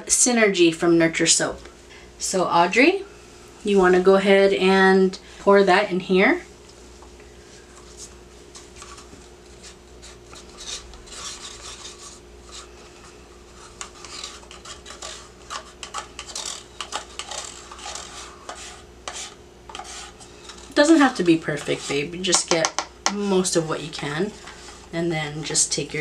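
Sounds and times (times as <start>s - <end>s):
sticks scraping plastic cups: 8.8s - 26.0s.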